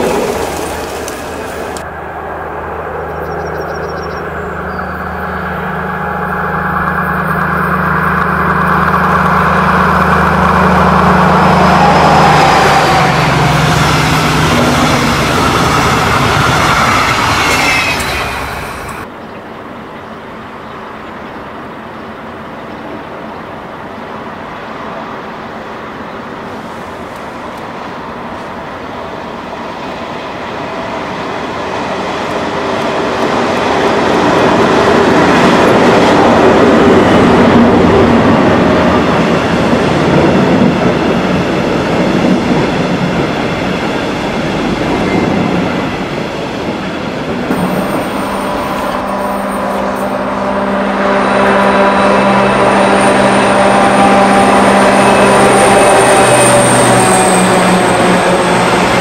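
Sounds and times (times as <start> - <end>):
diesel locomotive engine: 0.0 - 59.0
train coaches rolling past: 0.0 - 59.0
steady engine tone: 47.5 - 59.0.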